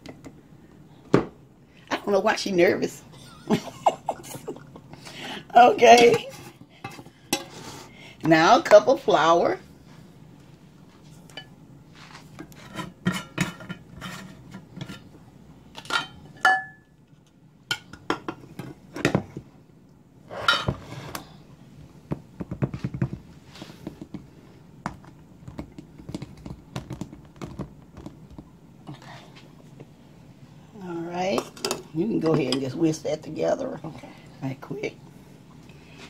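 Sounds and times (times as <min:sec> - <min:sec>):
kitchen containers clinking: 0:05.7 - 0:07.6.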